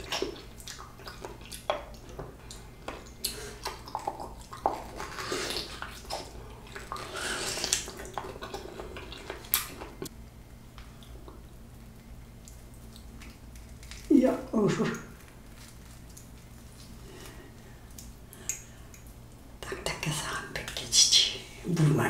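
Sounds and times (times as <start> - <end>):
wet chewing and slurping: 0.0 - 10.1.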